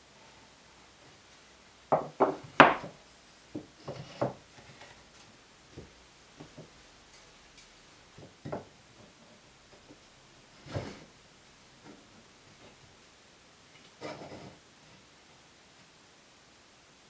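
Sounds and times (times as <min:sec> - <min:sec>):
plywood pieces knocking: 0:01.9 - 0:04.4, 0:08.2 - 0:09.1.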